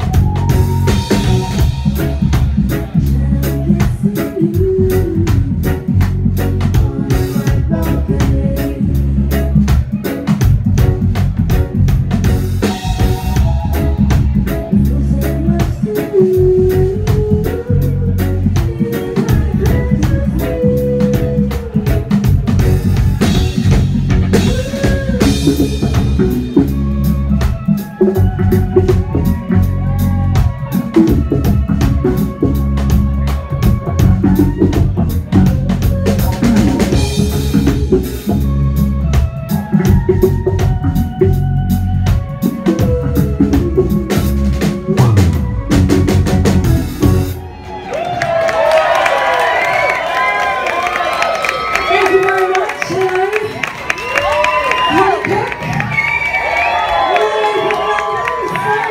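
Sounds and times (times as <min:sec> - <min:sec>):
drum kit with snare rimshots: 0:00.0 - 0:47.4
reggae band playing: 0:00.0 - 0:58.9
woman singing: 0:02.7 - 0:09.6, 0:12.7 - 0:23.7, 0:24.3 - 0:26.5.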